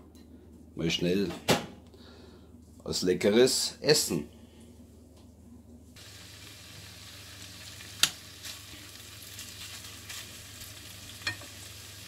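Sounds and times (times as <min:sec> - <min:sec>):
chicken sizzling in hot oil: 0:06.0 - 0:12.0.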